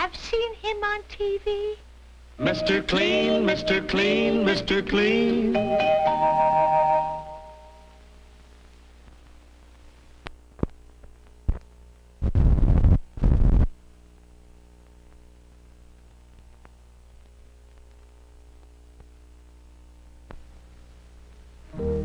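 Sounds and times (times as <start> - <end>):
low soundtrack hum: 2.4 - 8.1, 21.6 - 22.0
jingle chord: 21.7 - 22.0.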